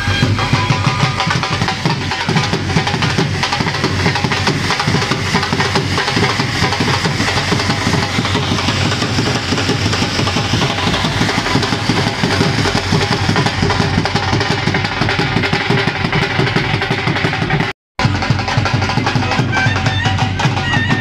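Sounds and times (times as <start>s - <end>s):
fireworks hissing: 0.0s - 16.8s
dhol drums beating: 0.0s - 21.0s.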